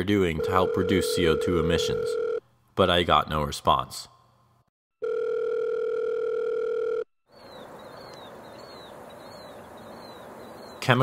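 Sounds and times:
telephone ringback tone: 0.4 - 2.4, 5.0 - 7.1
bird chirping: 7.3 - 11.0
outdoor ambience: 7.3 - 11.0.

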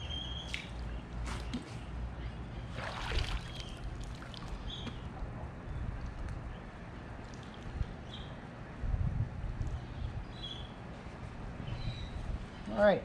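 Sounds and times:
water splashing and trickling: 0.4 - 1.9, 2.7 - 5.1, 5.8 - 8.4.

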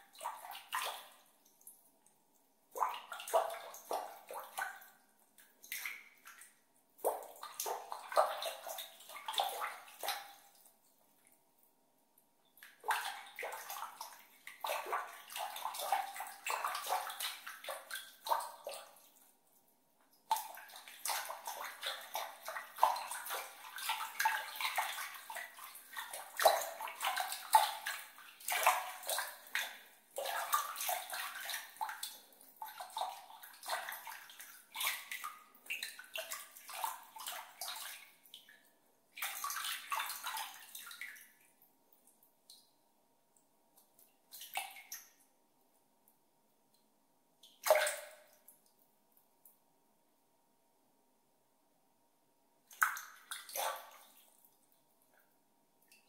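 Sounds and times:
water splashed by hand: 47.6 - 48.5.

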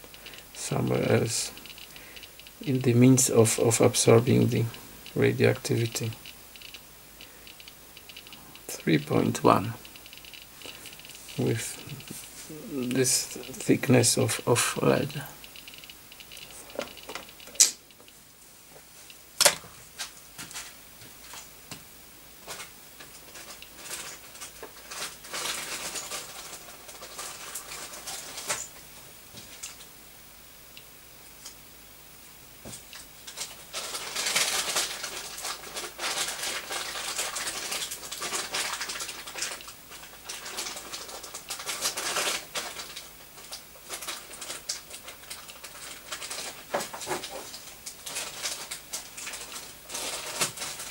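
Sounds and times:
geiger counter clicking: 1.5 - 18.2.

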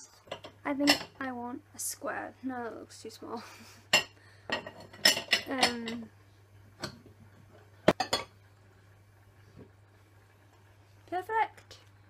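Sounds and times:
ceramic bowls clinking: 3.9 - 6.0.

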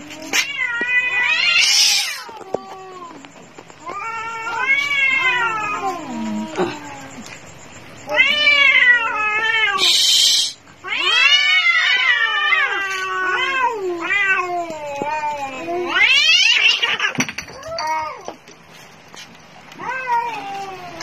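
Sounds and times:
cats yowling: 0.0 - 18.5, 19.6 - 21.0
cat hissing: 9.7 - 10.6.

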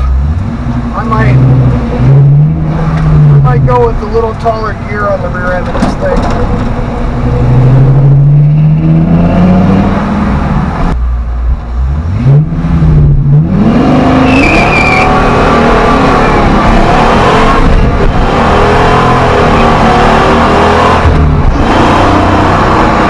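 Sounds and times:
engine accelerating hard: 0.0 - 11.0, 11.8 - 23.0
tires squealing: 13.4 - 23.0.

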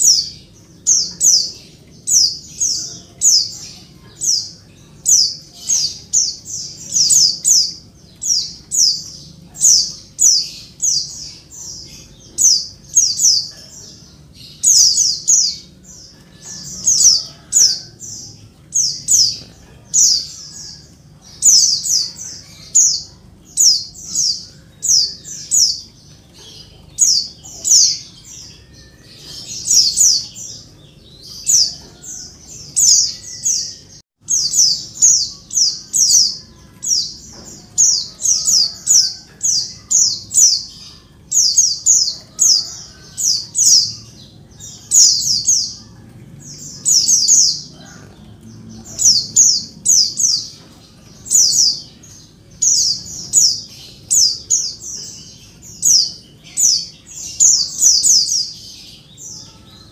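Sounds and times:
bird chirping: 0.0 - 59.9.

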